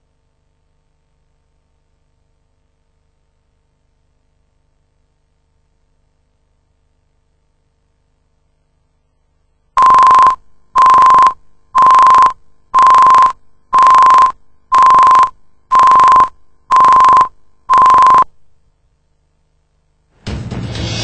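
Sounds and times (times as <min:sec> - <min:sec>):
steady pure beep tone: 0:09.8 - 0:18.3.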